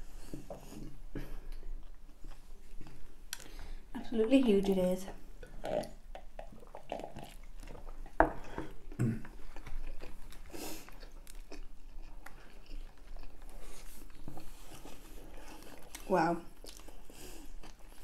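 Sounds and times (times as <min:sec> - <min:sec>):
chewing burger: 0:05.4 - 0:18.0.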